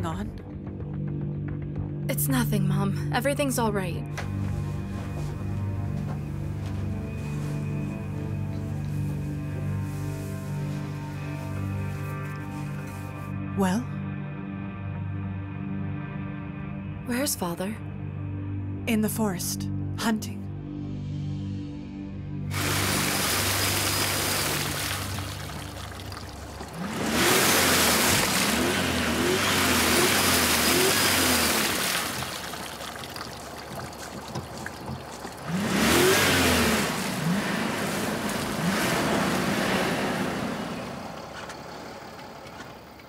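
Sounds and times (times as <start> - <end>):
car engine revving: 22.5 - 42.9
wheels spinning in mud: 22.5 - 43.0.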